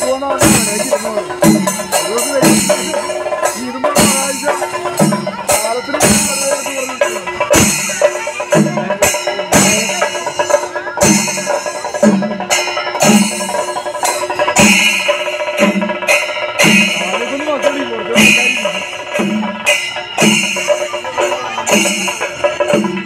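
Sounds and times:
heavy drum strokes: 0:00.0 - 0:23.0
jangling cymbals: 0:00.0 - 0:23.0.

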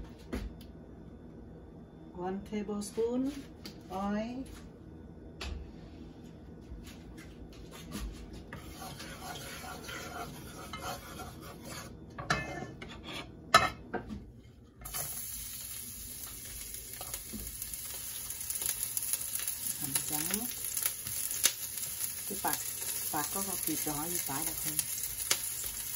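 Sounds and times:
garlic sizzling in oil: 0:14.8 - 0:25.9.

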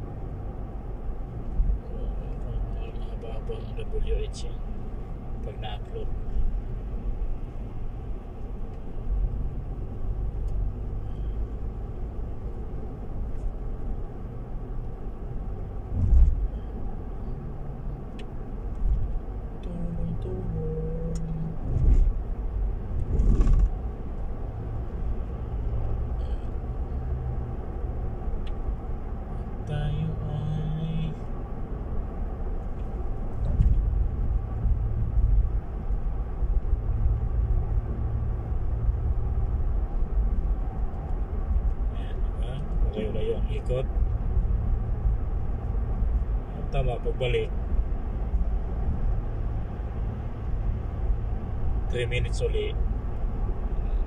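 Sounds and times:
car engine and road noise: 0:00.0 - 0:54.0.

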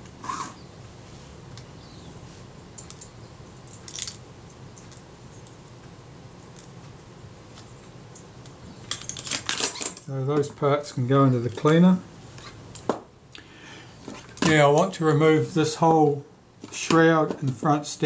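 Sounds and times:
small metal parts clinking: 0:02.8 - 0:04.2, 0:06.5 - 0:07.0, 0:08.8 - 0:10.1.

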